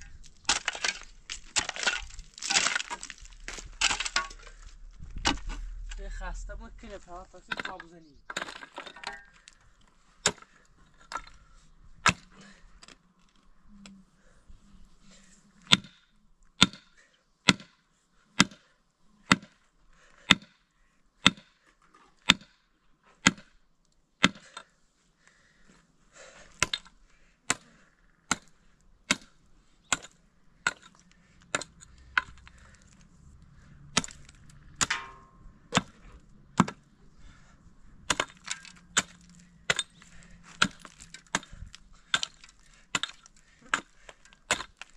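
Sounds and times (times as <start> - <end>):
pickaxe striking rocky ground: 0.0 - 11.4, 12.0 - 13.0, 15.7 - 16.0, 16.6 - 16.9, 17.5 - 17.7, 22.2 - 22.5, 24.2 - 24.7, 26.5 - 27.7, 28.3 - 33.0, 33.9 - 37.4, 38.0 - 44.9.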